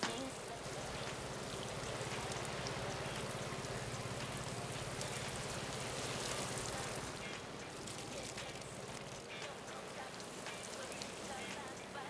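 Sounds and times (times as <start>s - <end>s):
watering can spraying water: 0.0s - 12.0s.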